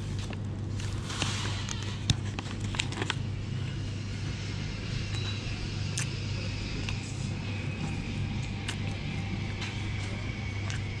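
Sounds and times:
paper bag crinkling: 0.0 - 3.3
steady low hum: 0.0 - 11.0.

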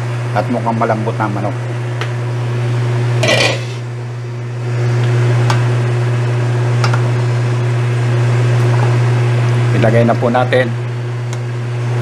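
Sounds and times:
steady low hum: 0.0 - 12.0
cookware clattering: 3.2 - 3.8.

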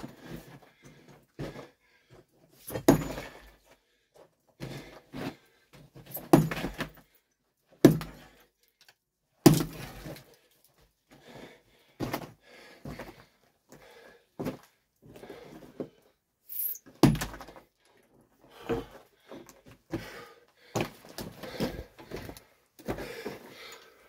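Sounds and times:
stones knocking on rock rubble: 6.1 - 7.0, 9.4 - 9.9, 17.0 - 17.6.

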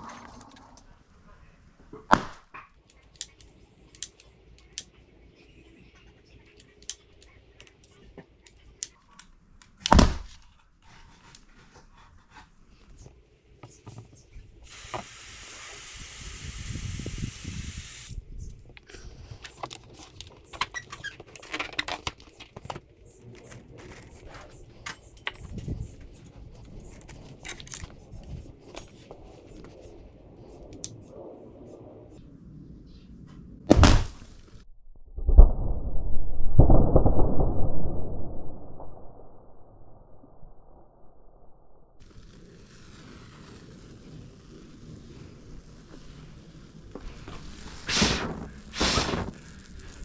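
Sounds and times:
spray can gas hissing: 14.6 - 18.5, 47.2 - 50.0
balloons rubbing and clicking: 18.4 - 31.0, 42.0 - 50.0
balloons bursting with bang: 33.7 - 34.2, 47.8 - 49.4.

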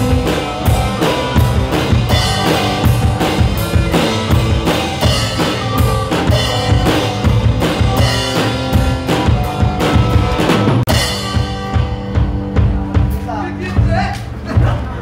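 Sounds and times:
drum kit steady beat: 0.0 - 15.0
rock band playing: 0.0 - 15.0.

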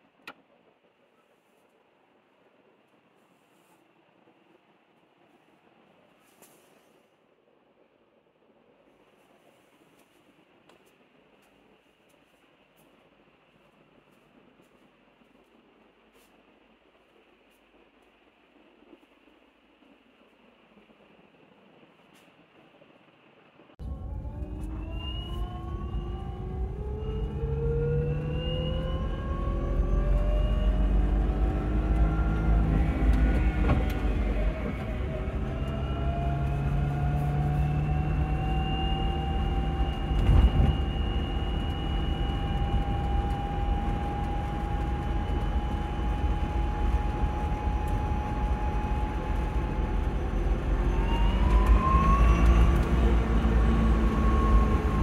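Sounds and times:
low road rumble: 0.0 - 55.0
electric motor whine: 23.8 - 55.0.

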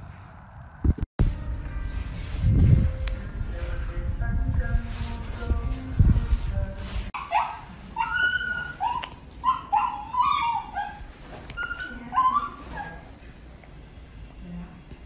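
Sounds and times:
puppy yipping and whining: 7.2 - 13.1.

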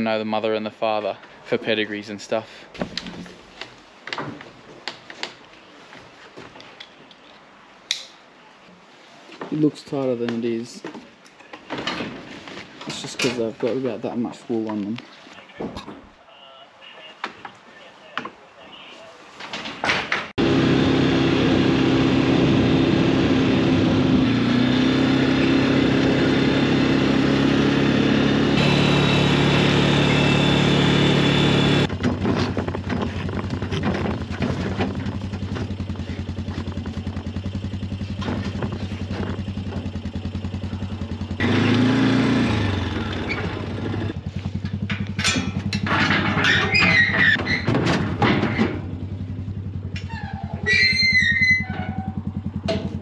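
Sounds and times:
farm vehicle engine running: 20.4 - 53.0.

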